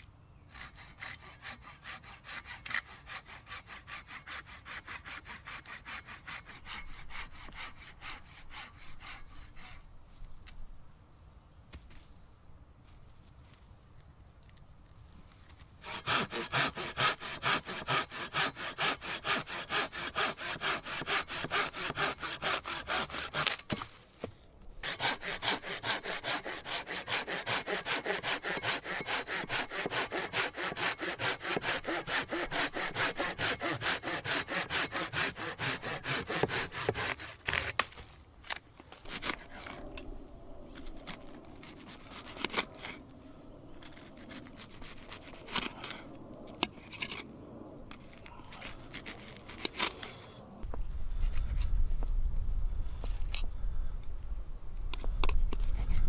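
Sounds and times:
pruning saw cutting branch: 0.5 - 9.9, 15.8 - 24.0, 24.8 - 39.9, 40.7 - 43.0, 43.7 - 47.3, 47.9 - 50.3.

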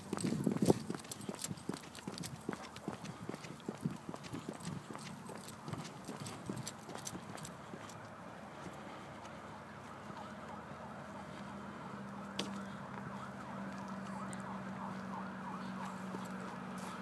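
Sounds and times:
distant siren yelping: 9.3 - 17.0.

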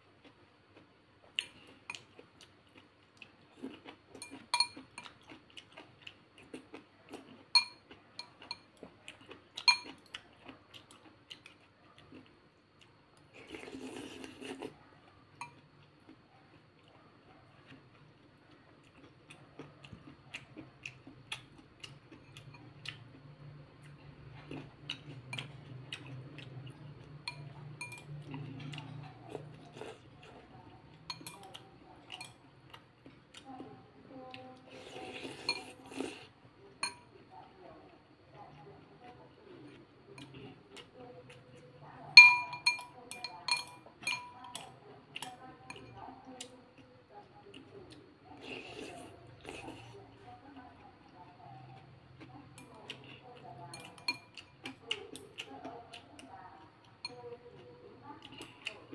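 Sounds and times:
soft chewing: 0.0 - 58.9
chopsticks and spoon clinking on bowl: 3.6 - 12.2, 15.3 - 15.6, 18.9 - 23.2, 23.9 - 33.5, 34.7 - 37.2, 39.6 - 46.6, 52.3 - 56.3, 57.0 - 58.9
slurp from spoon: 13.4 - 14.8.

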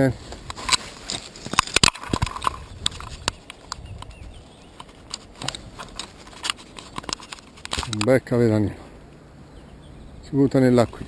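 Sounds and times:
sharp clicks and knocks: 0.5 - 8.2.

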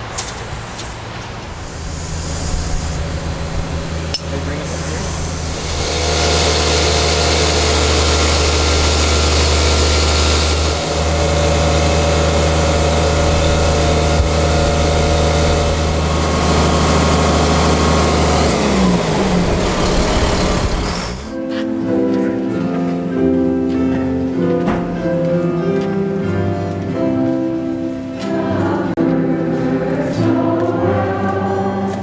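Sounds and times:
crane engine humming: 0.0 - 21.4.

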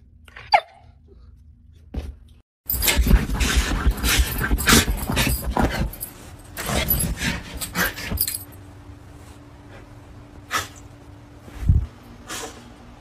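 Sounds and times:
dog scratching a blanket: 2.7 - 8.2.

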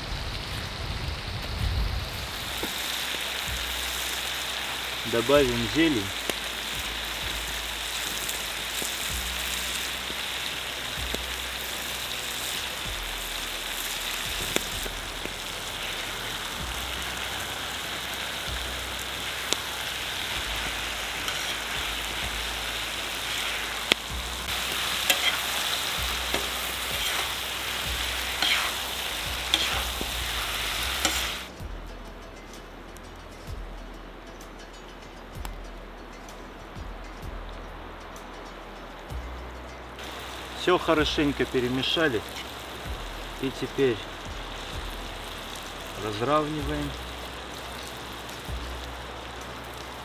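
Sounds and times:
food sizzling in hot pan: 0.0 - 31.6, 40.0 - 50.0
spatula clicking and scraping pan: 24.8 - 25.7, 26.3 - 27.4, 28.3 - 28.8, 29.5 - 30.0.

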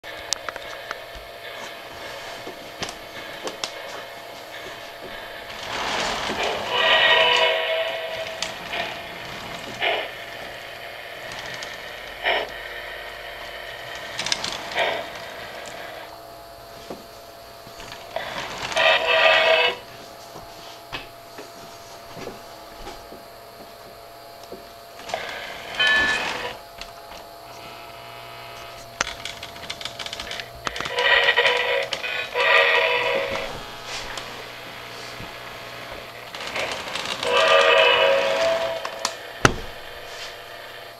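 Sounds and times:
model train electric hum: 0.0 - 40.9
wheels clicking on rail: 2.5 - 12.6, 29.0 - 33.5, 36.2 - 39.2
steam hissing bursts: 3.1 - 16.1, 30.9 - 40.9
model steam whistle blasts: 6.0 - 8.9, 30.9 - 34.0, 36.5 - 39.2.

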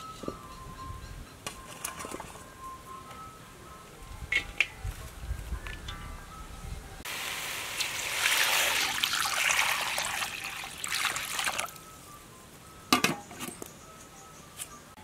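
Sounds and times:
water pouring into wok: 7.1 - 11.6.

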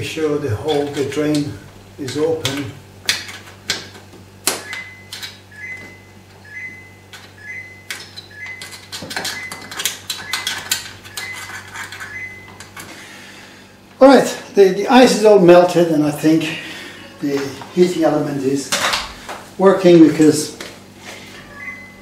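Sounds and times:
low steady hum: 0.0 - 22.0
short electronic beeps: 4.6 - 12.6, 21.4 - 22.0.

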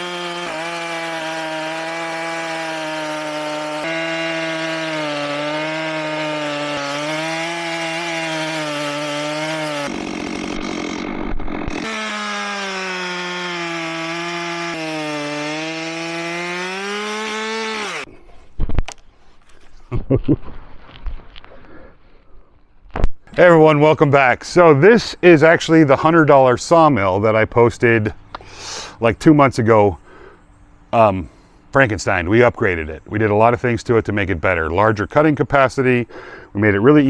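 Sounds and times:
chainsaw cutting through log: 0.0 - 18.1.

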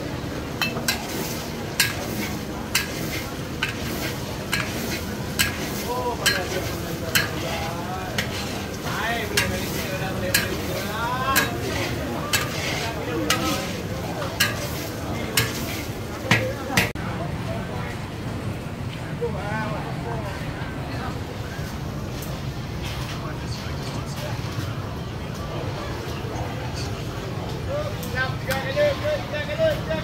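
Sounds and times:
noodles sizzling in a wok: 0.2 - 17.0
metal spatula scraping a wok: 0.6 - 16.9.

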